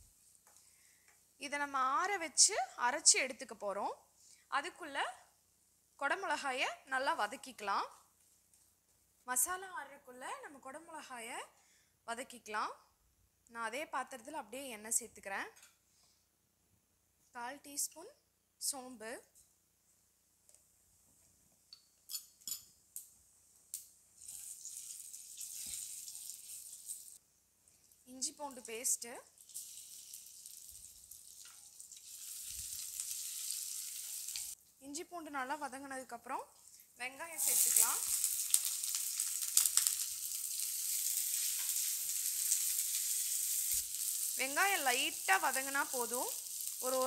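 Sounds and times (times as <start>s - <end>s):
seeds sizzling in hot oil: 23.6s - 34.7s, 36.6s - 47.0s.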